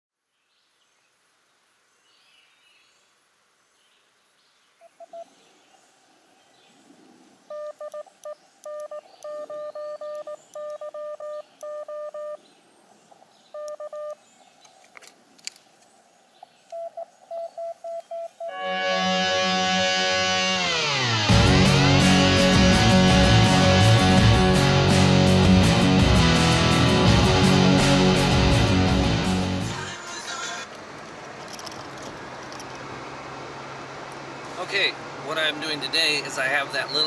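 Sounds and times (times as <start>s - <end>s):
faint birdsong: 0.2s - 18.7s
morse code beeps: 7.5s - 12.4s, 13.6s - 14.2s, 16.7s - 18.6s.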